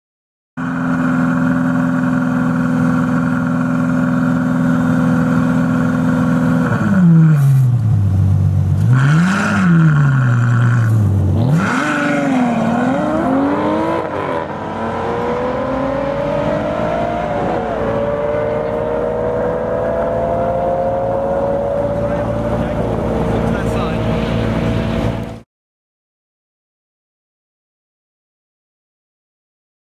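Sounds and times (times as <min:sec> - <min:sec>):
car engine revving: 0:00.6 - 0:25.4
cars accelerating through gears: 0:08.9 - 0:25.4.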